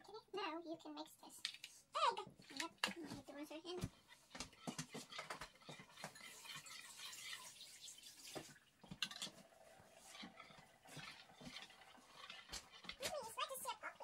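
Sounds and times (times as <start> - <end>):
whisk swishing egg yolks: 1.3 - 14.0
whisk clicking against bowl: 3.8 - 7.6, 10.0 - 14.0.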